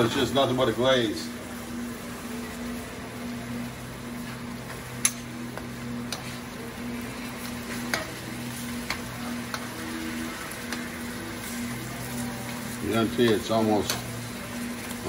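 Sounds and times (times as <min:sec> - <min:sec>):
sauce sizzling and bubbling: 0:00.0 - 0:15.0
metal tongs clicking on pan: 0:05.0 - 0:05.3, 0:13.2 - 0:14.1.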